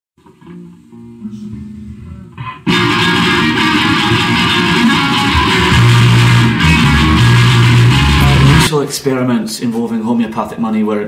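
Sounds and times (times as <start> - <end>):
guitar-led band music: 2.3 - 8.7.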